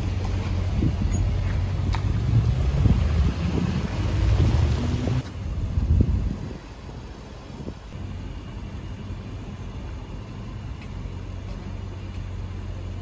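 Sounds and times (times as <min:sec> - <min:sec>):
car engine rumbling and idling: 0:00.0 - 0:13.0.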